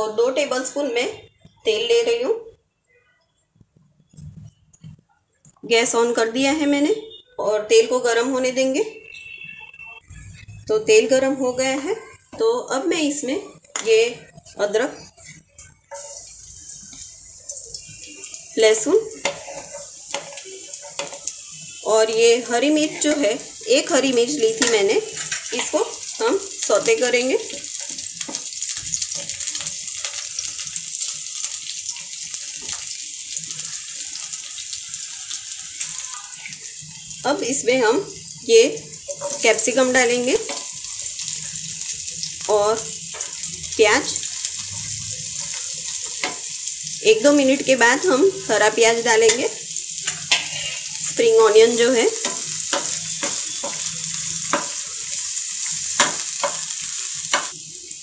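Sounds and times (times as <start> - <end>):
food sizzling in hot oil: 7.8 - 58.0
wooden spatula stirring: 19.2 - 21.7, 39.0 - 40.7.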